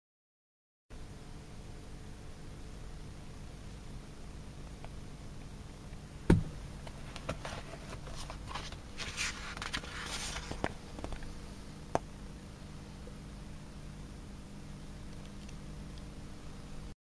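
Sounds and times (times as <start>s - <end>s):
book thump: 6.3s - 6.6s
paper rustling and sliding: 7.0s - 11.1s.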